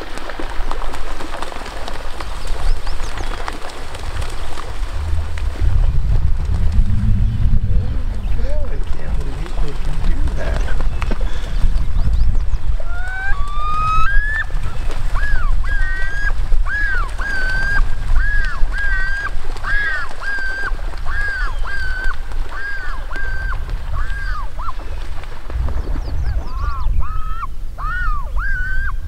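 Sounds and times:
steady low rumble: 4.0 - 12.8.

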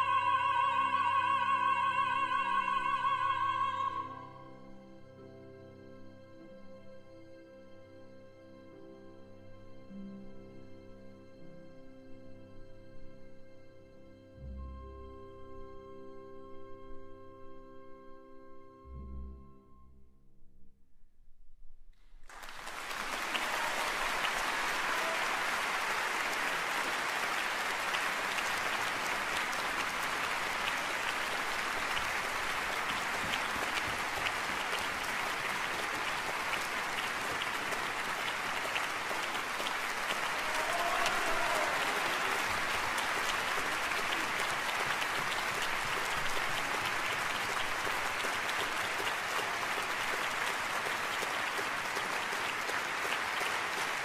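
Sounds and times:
audience applauding: 22.2 - 54.0.

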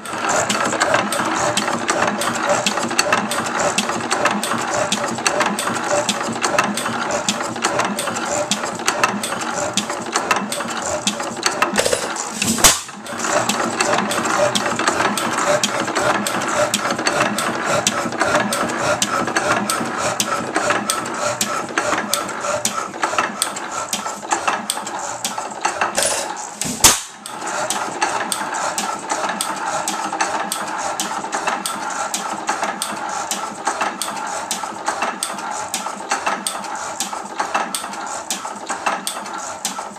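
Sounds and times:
engine valve gear clattering: 24.3 - 31.7.

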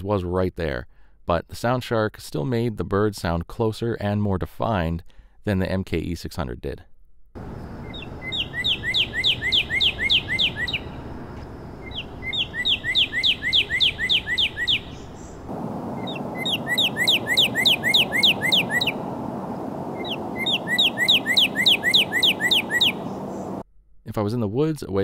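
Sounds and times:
songbird whistling: 7.4 - 23.6
street traffic rush: 7.4 - 23.6.

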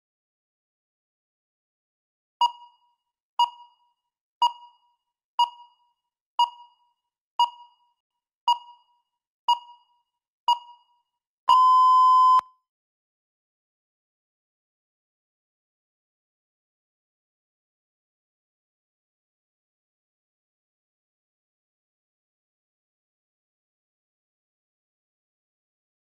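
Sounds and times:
countdown timer short beeps: 2.4 - 5.8, 6.4 - 7.9, 8.5 - 10.9, 11.5 - 12.5
timer long beep: 11.5 - 12.5.

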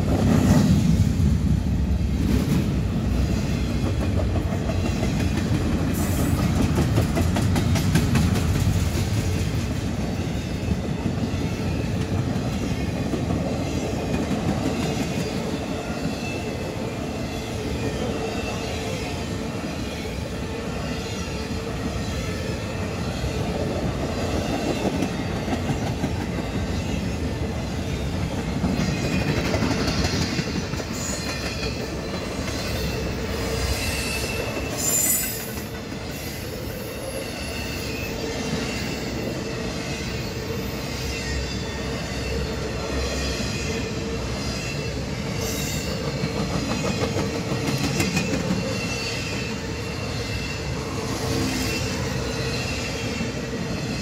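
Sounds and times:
clickety-clack over rail joints: 0.0 - 1.3, 1.9 - 16.4, 21.8 - 36.7, 44.4 - 54.0
train wheels rumbling on rails: 0.0 - 54.0
high wheel squeal: 28.8 - 35.6, 36.2 - 47.1, 48.0 - 54.0.

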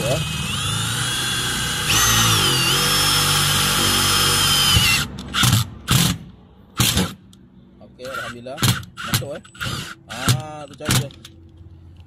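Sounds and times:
power driver motor whine: 0.0 - 5.1.

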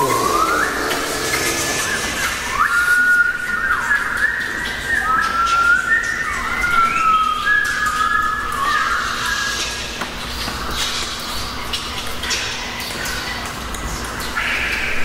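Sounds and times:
group whistling: 0.0 - 9.6.

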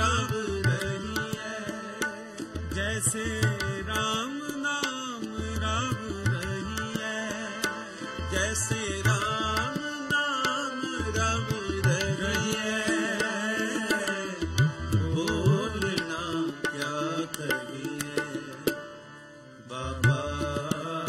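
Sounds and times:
person singing: 0.0 - 18.6
harmonium: 0.0 - 21.0
tabla drumming: 0.0 - 21.0.

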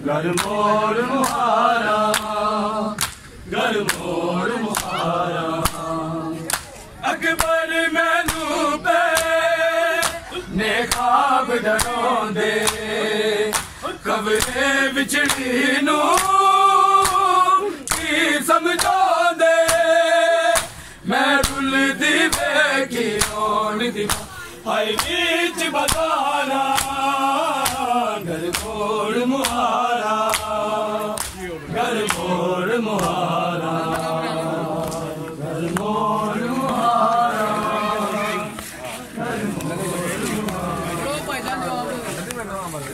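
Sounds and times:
men singing a lament: 0.0 - 42.3
hands slapping chests: 0.3 - 0.6, 1.2 - 1.4, 2.1 - 2.4, 3.0 - 4.1, 4.7 - 5.0, 5.6 - 6.8, 7.4 - 7.6, 8.2 - 8.5, 9.1 - 9.4, 10.0 - 10.3, 10.9 - 11.1, 11.8 - 12.0, 12.6 - 12.9, 13.5 - 13.8, 14.4 - 14.6, 15.2 - 15.5, 16.1 - 16.4, 17.0 - 18.1, 18.8 - 19.0, 19.6 - 19.9, 20.5 - 20.8, 21.4 - 21.7, 22.3 - 23.4, 24.0 - 24.3, 25.0 - 25.2, 25.9 - 26.1, 26.7 - 27.0, 27.6 - 28.8, 29.4 - 32.3, 32.9 - 33.2, 34.8 - 35.9.

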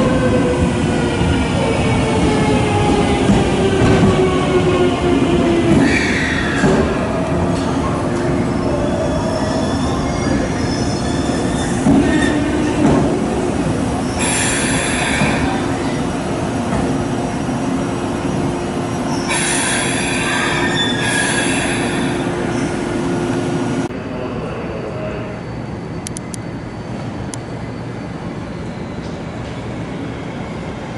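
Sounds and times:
train rumble and hum: 0.0 - 30.9
wheel and brake squeal: 19.1 - 22.1.

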